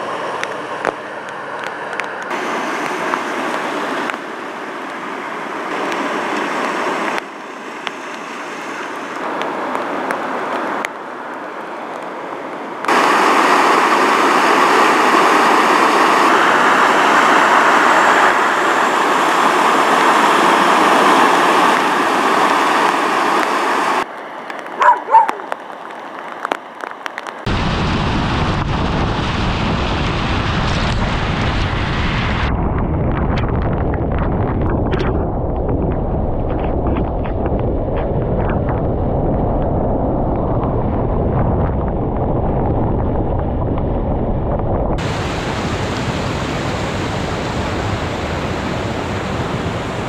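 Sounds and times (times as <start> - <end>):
tyres ploughing through floodwater: 0.0 - 27.5.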